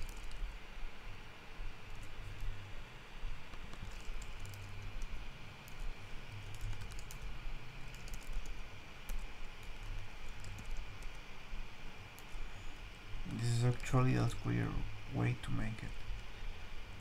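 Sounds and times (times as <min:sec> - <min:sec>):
keyboard typing: 0:00.0 - 0:00.4, 0:03.5 - 0:11.2
steady low hum: 0:00.0 - 0:17.0.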